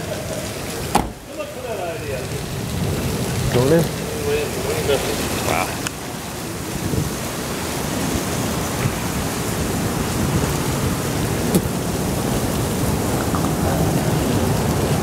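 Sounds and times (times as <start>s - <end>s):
heavy rain falling: 0.0s - 15.0s.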